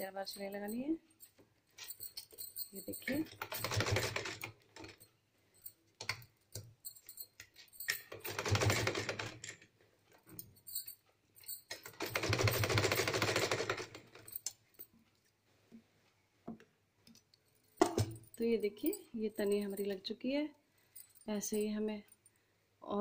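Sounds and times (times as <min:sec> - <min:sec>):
sewing machine stitching: 0:03.0 - 0:04.9, 0:08.0 - 0:09.4, 0:11.8 - 0:14.2.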